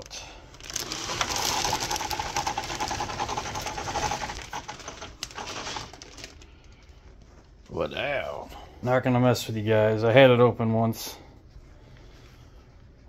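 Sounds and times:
plastic bag crinkling: 0.4 - 7.8.

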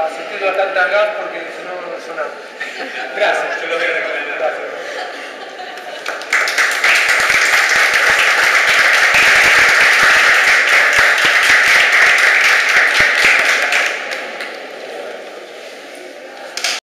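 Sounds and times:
audience applauding: 5.8 - 14.7.

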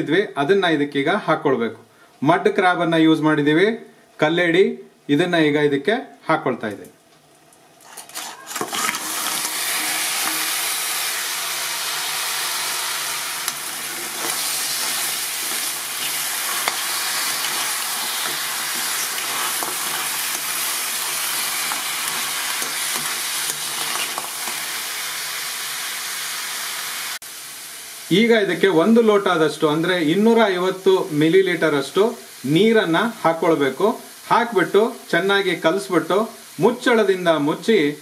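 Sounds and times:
spoon scraping pan: 7.8 - 24.6
crab sizzling in hot oil: 7.8 - 38.0.

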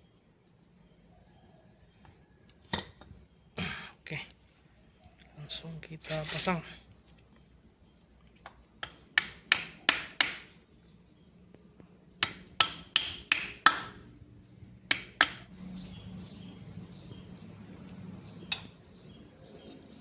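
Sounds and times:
hammer tapping on metal: 8.8 - 10.4, 12.2 - 14.0, 14.9 - 15.5.

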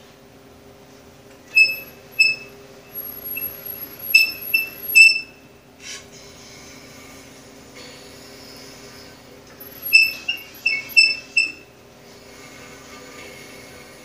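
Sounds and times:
bandsaw wheel squeaks: 1.4 - 5.4, 9.6 - 11.7.

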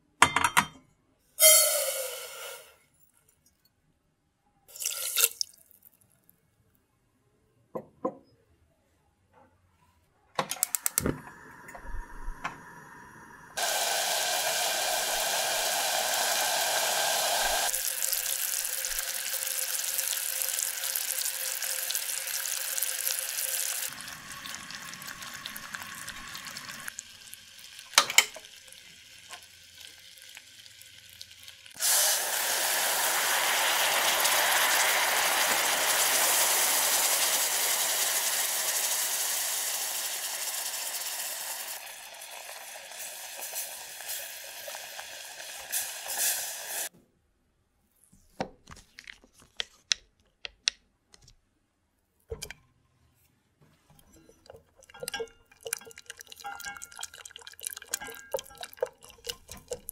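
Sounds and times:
syrup boiling and sizzling in saucepan: 1.4 - 2.9, 4.7 - 6.0, 10.7 - 46.9, 53.9 - 59.9
hot caramel hissing and foaming: 11.3 - 46.9.

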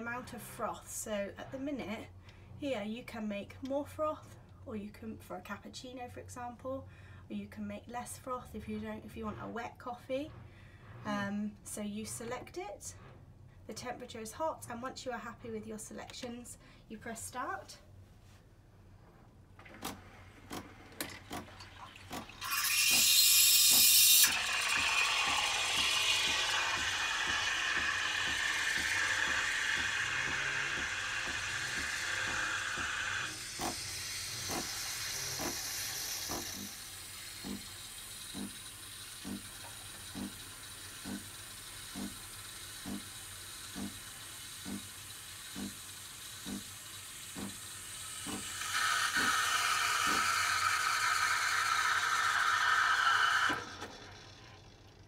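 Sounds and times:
coffee machine clicking: 22.1 - 33.8, 48.3 - 54.0
steam wand hissing: 22.4 - 53.7.

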